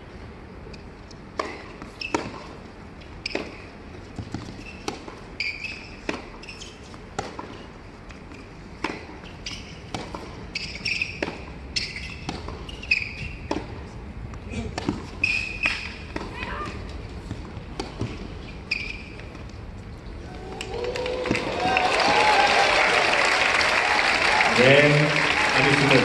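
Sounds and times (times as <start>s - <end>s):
racket hitting tennis ball: 1.3s - 2.6s, 3.2s - 19.5s
tennis ball bouncing: 1.3s - 19.7s
sneakers squeaking on court: 1.4s - 2.6s, 3.2s - 7.7s, 8.3s - 13.8s, 14.8s - 19.5s.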